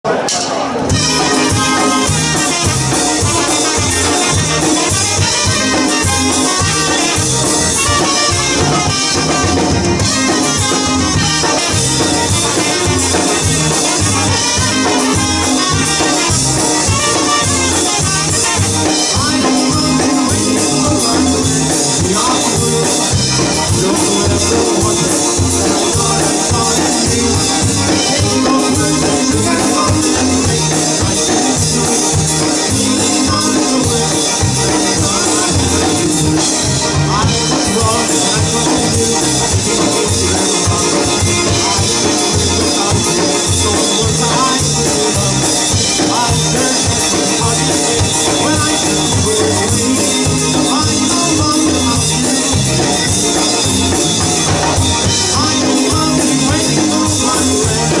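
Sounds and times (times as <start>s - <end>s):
polka band playing: 0.1s - 58.0s.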